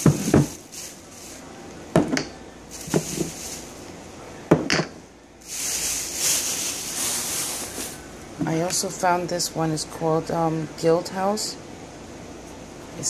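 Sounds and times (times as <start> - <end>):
soft rustle: 0.0 - 1.5, 2.7 - 3.8, 5.4 - 8.1.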